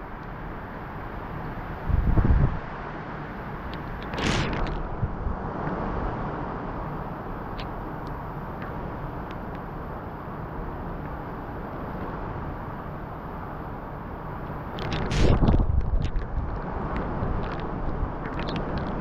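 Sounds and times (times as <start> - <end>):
strong wind rushing: 1.7 - 2.9, 4.0 - 6.6, 14.9 - 19.0.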